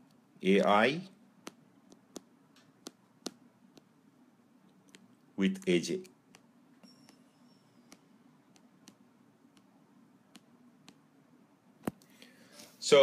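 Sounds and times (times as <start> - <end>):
stylus tapping tablet: 0.0 - 4.0, 4.6 - 5.3, 5.9 - 11.2.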